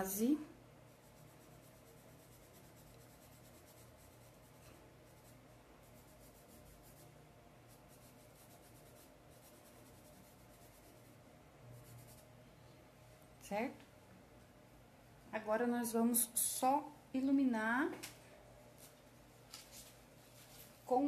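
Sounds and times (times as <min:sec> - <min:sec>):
paintbrush scratching on cloth: 0:00.8 - 0:12.3.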